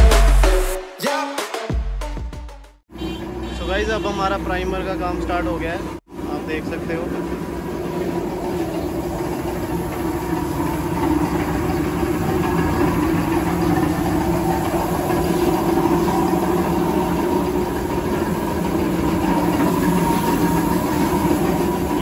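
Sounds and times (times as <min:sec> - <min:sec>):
air compressor humming: 0:06.1 - 0:22.0.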